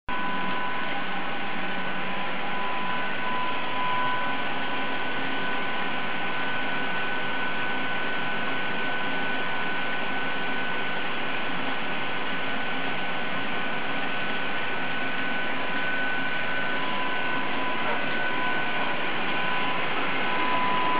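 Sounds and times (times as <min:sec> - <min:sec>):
constant high tones: 0:00.1 - 0:06.9, 0:14.9 - 0:20.9.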